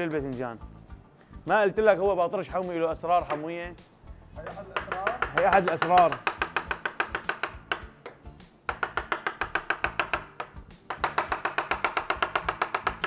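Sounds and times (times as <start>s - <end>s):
knife chopping soft food: 4.4s - 13.0s.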